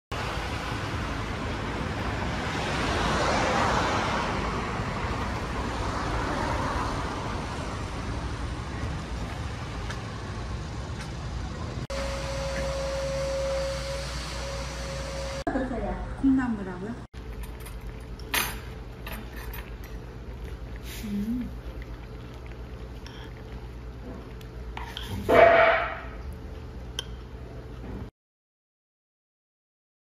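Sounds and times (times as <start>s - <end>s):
street traffic: 0.1s - 17.1s
vehicle passing: 0.2s - 15.4s
low hum: 7.0s - 27.9s
steady single tone: 11.9s - 15.5s.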